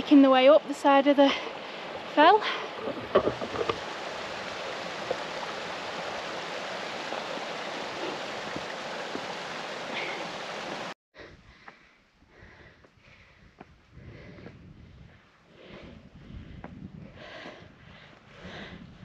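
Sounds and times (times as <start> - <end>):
running water rushing: 0.0 - 11.0.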